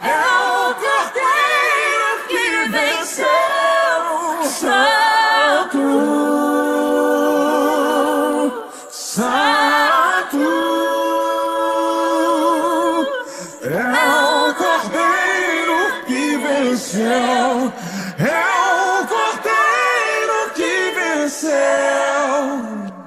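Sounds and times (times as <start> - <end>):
a cappella voices singing: 0.0 - 23.0.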